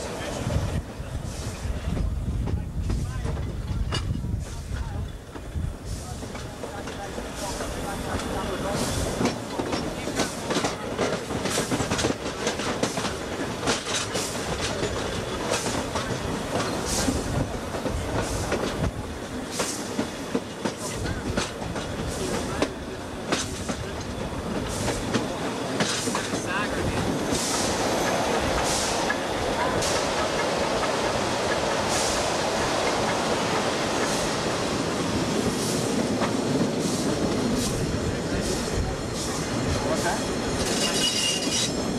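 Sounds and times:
train rumble and wheel clatter: 0:00.0 - 0:41.9
steam hiss bursts: 0:27.2 - 0:40.9.

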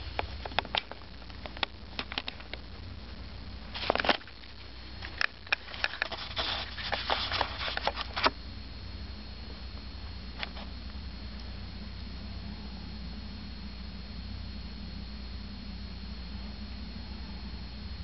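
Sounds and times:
kitten rustling and scratching: 0:03.6 - 0:08.3.

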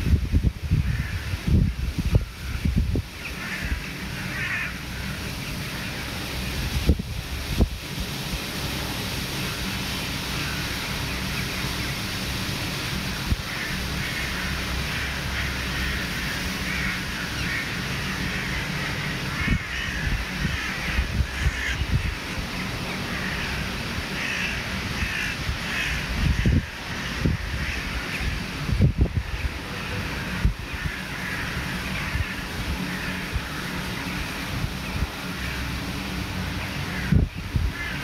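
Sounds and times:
crows cawing: 0:00.8 - 0:01.4, 0:02.2 - 0:06.0, 0:13.4 - 0:28.4, 0:30.2 - 0:33.9, 0:35.2 - 0:35.8, 0:36.8 - 0:38.0.

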